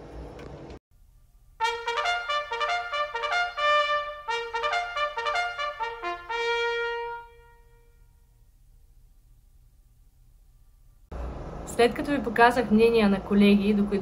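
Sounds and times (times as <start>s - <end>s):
trumpet jingle: 1.6s - 8.4s.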